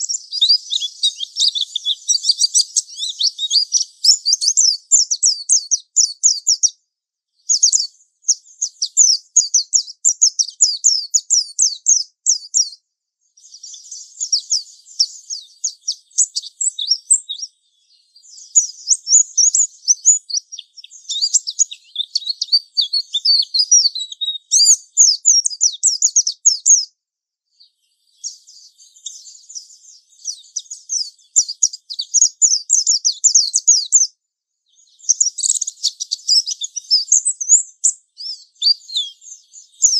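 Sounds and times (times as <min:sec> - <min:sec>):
white-eye bird singing: 0:00.0 - 0:39.9.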